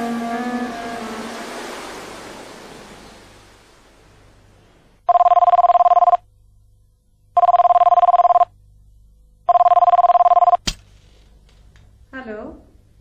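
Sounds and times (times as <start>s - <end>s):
telephone ringing: 5.1s - 6.2s, 7.4s - 8.5s, 9.5s - 10.6s.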